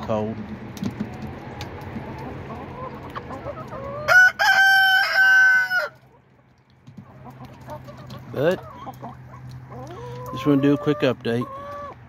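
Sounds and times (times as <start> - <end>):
hens clucking: 0.0 - 12.0
rooster crowing: 4.0 - 6.0.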